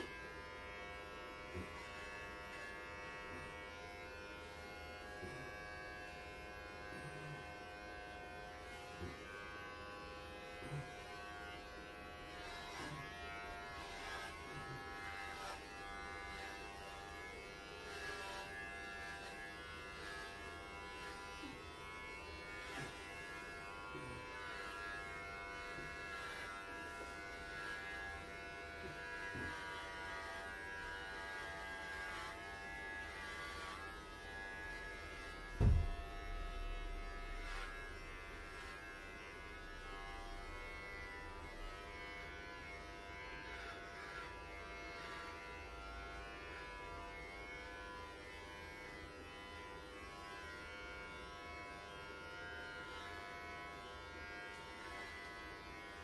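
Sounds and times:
electric pet clipper buzzing: 0.0 - 56.0
low thump: 35.6 - 36.7.

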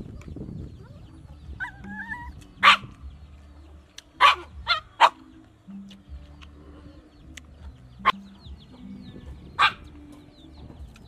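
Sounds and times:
dog barking: 2.6 - 3.0, 4.2 - 5.3, 9.6 - 9.9.

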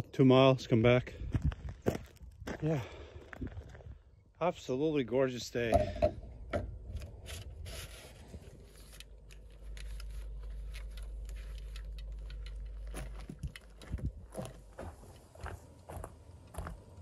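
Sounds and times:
gear and clothing handling noise: 7.1 - 15.7.

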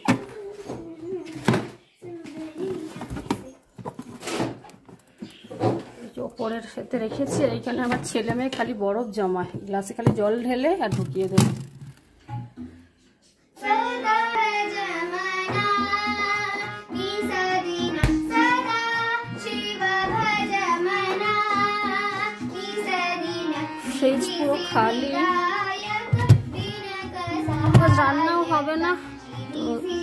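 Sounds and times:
girl singing: 0.0 - 3.6, 13.6 - 30.0.

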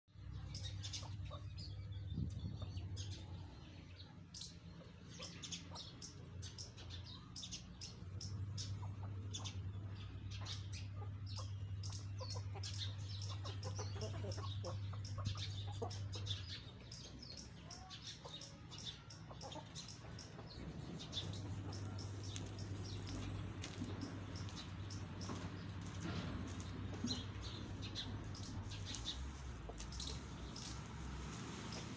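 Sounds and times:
hens clucking: 8.1 - 30.4.

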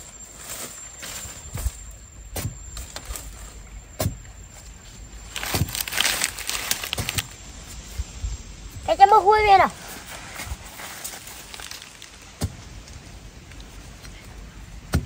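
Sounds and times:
scraping and scratching soil: 5.2 - 7.3, 9.7 - 12.8.

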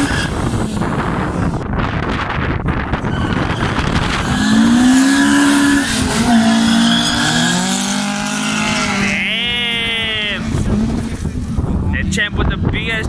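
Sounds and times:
tyre squeal: 0.0 - 0.4, 3.0 - 9.1
engines revving hard: 3.3 - 12.6.

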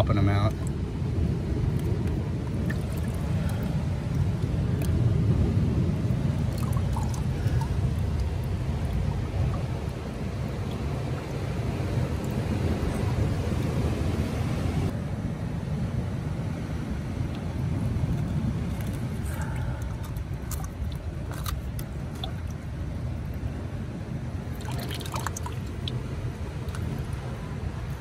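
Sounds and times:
wind and surf rumble: 0.0 - 28.0
water dripping and trickling: 0.5 - 0.8, 1.6 - 5.3, 6.0 - 13.8, 17.3 - 23.5, 24.4 - 28.0.

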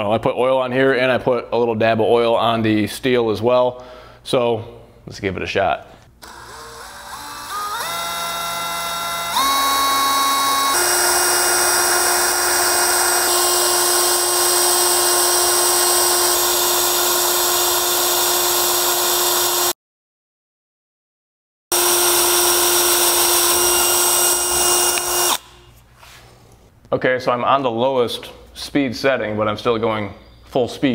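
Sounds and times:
cordless drill whining: 6.2 - 19.8, 21.7 - 25.5
drill bit cutting steel: 6.2 - 19.8, 21.7 - 25.5.

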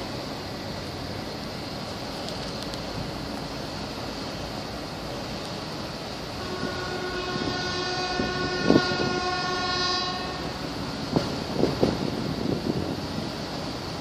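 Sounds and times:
ship's horn blast: 6.4 - 10.8.

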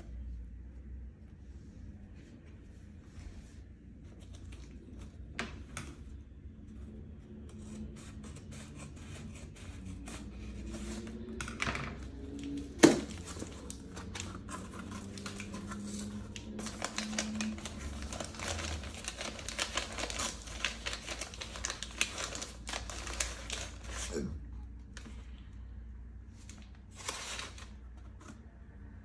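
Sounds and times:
paper wrapping crinkling: 12.2 - 24.3, 26.4 - 28.2
cardboard flaps folding: 12.4 - 24.1.

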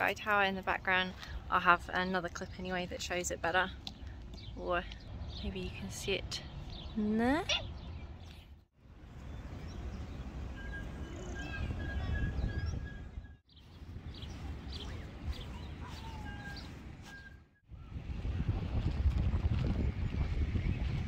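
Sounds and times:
wind rumbling on microphone: 0.0 - 21.0
small birds chirping: 2.2 - 18.0.

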